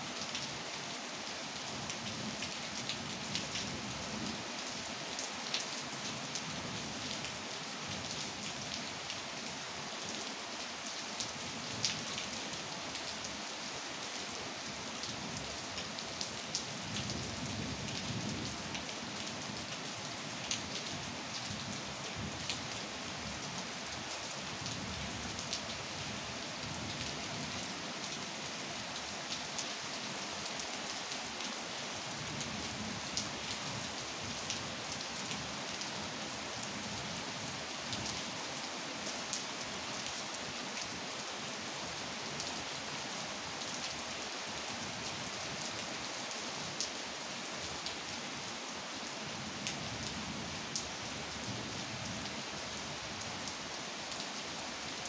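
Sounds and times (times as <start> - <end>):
steady rain falling: 0.0 - 55.0
raindrops ticking on surfaces: 14.7 - 41.2.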